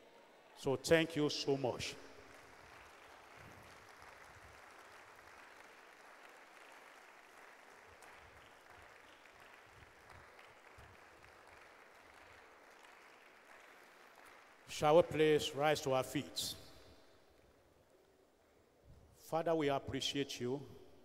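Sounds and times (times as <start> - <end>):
faint audience applause: 1.8 - 15.3.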